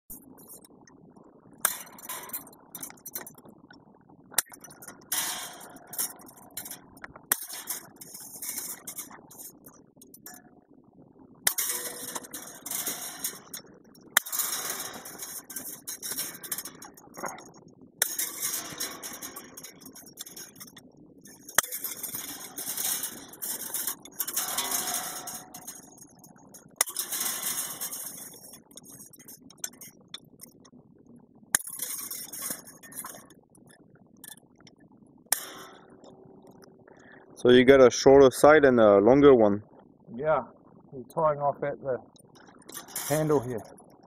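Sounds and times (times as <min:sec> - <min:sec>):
fence wire clinking and rattling: 0:01.6 - 0:10.5, 0:11.5 - 0:30.8, 0:31.5 - 0:34.7, 0:35.3 - 0:37.0, 0:42.1 - 0:44.0.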